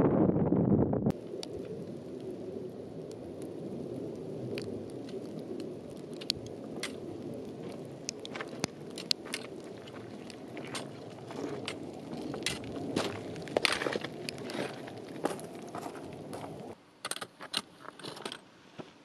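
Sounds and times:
steady low rush: 0.0s - 16.8s
footsteps on loose gravel: 6.8s - 16.8s.

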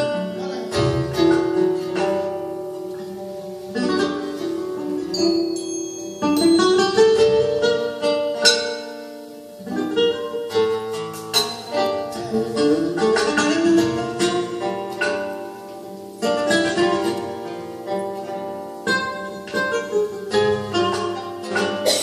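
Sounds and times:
acoustic flamenco guitars: 0.0s - 22.0s.

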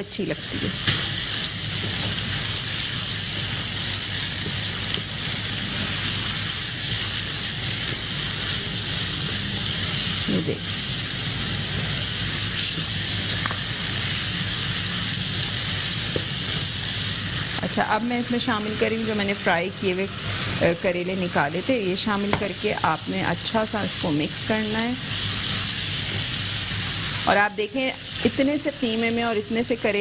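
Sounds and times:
meat sizzling in oil: 0.0s - 30.0s.

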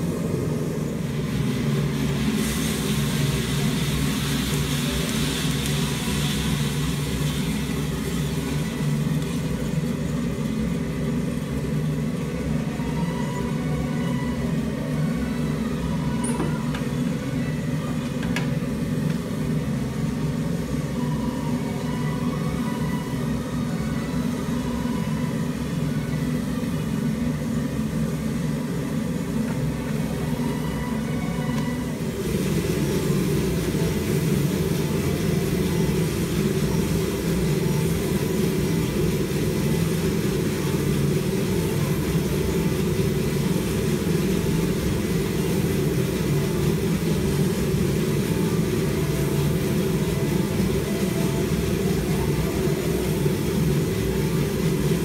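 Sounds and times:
coffee roaster fan whirring: 0.0s - 55.0s.

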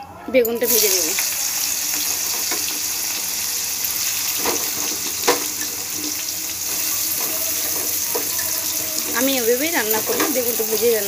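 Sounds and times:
vegetables sizzling in hot oil: 0.6s - 11.0s
knock against pan: 4.4s - 5.7s.

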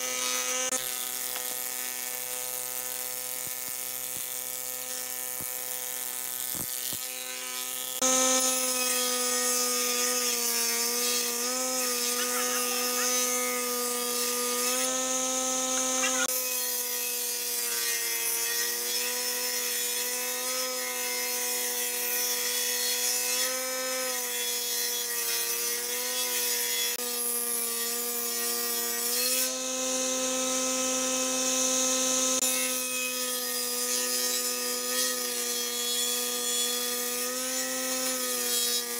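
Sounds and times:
knives planing wood: 0.0s - 38.9s
planer motor whine: 8.0s - 16.3s.

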